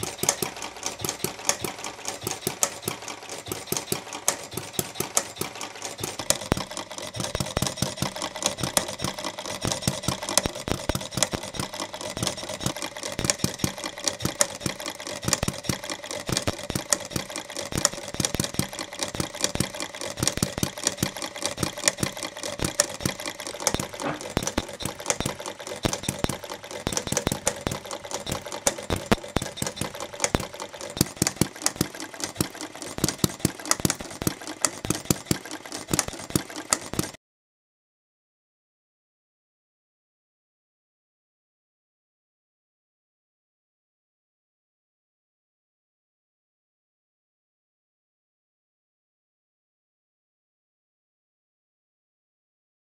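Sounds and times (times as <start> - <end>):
model gas engine clattering: 0.0 - 37.2.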